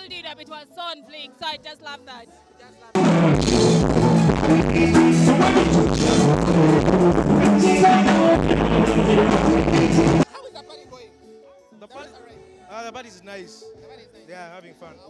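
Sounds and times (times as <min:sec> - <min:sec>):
drum kit: 0:03.0 - 0:10.2
live band music: 0:03.0 - 0:10.2
men singing into microphones: 0:03.0 - 0:10.2.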